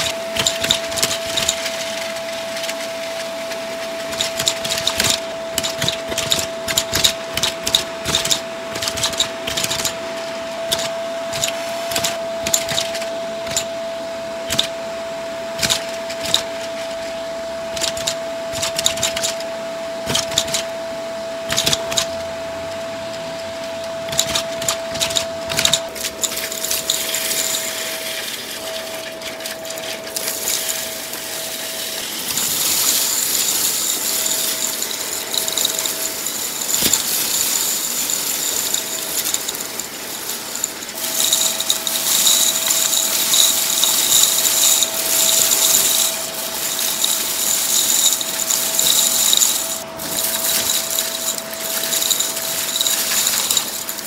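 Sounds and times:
debris rattling through hose: 0:00.0 - 0:13.7, 0:24.1 - 0:54.0
vacuum cleaner motor whine: 0:00.0 - 0:54.0
bottle caps clattering up tube: 0:24.1 - 0:31.2, 0:31.9 - 0:54.0.

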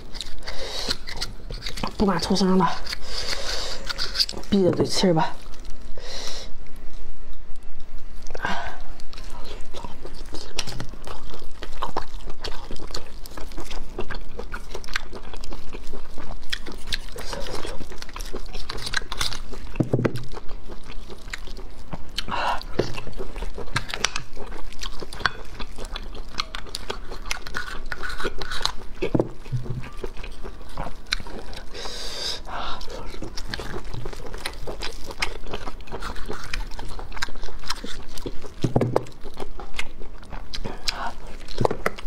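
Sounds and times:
close chewing with wet clicks: 0:00.0 - 0:05.8, 0:07.7 - 0:42.0.

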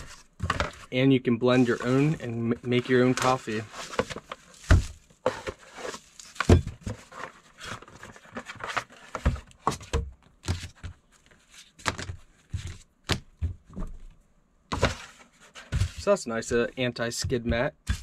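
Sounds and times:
plastic rustling: 0:01.5 - 0:09.3
knocks and thuds on table: 0:11.9 - 0:14.0.

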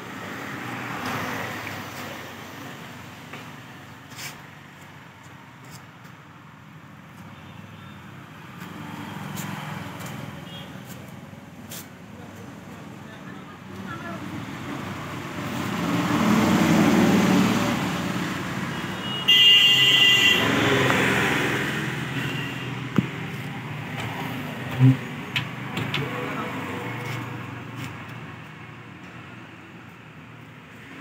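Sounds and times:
road traffic passing: 0:00.0 - 0:31.0
sharp knocks and clicks: 0:23.9 - 0:26.2.

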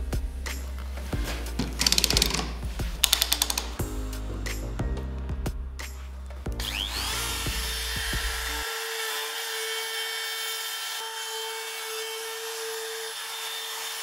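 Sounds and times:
router cutting wood: 0:06.6 - 0:14.0.

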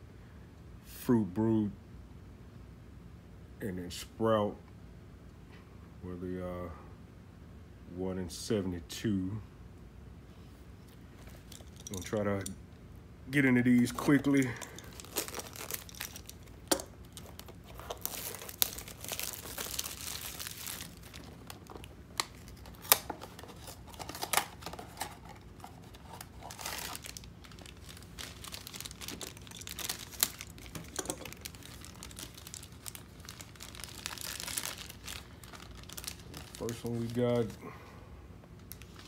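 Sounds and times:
foil bag crinkling and tearing: 0:13.6 - 0:37.6.

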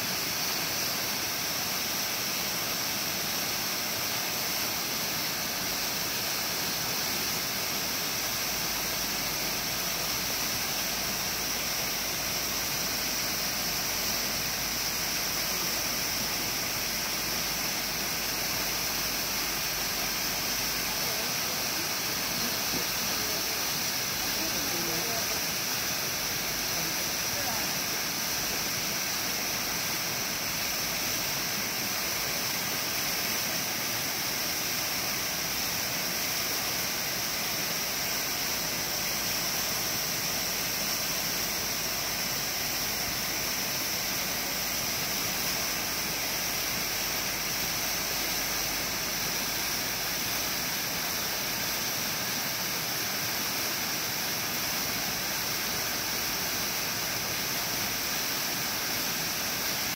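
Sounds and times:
small waterfall splashing: 0:00.0 - 0:59.9.

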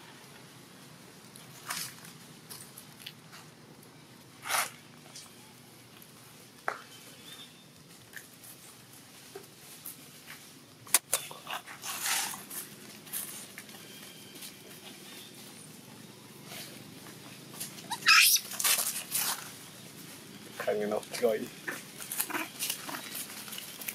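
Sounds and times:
rustling in dry leaves: 0:00.1 - 0:23.9
soft animal sounds: 0:11.0 - 0:23.9.

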